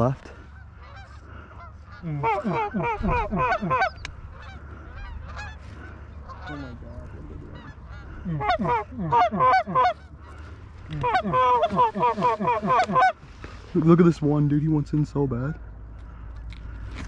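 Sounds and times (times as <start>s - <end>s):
goose honking and clucking: 0.0s - 13.2s.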